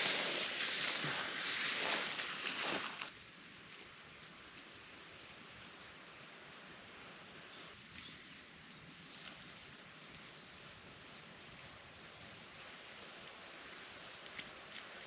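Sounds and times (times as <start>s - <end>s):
light rain hissing: 0.0s - 8.6s.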